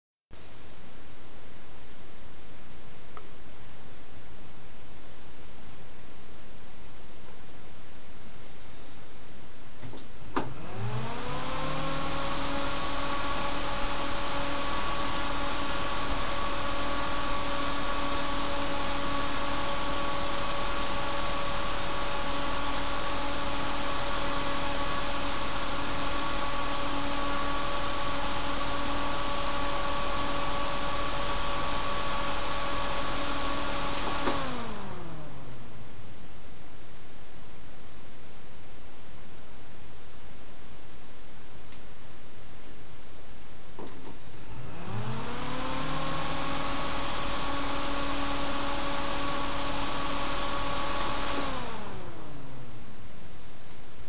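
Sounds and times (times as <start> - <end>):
fan hum: 0.4 - 54.0
fan rushing air: 7.4 - 38.8, 43.4 - 54.0.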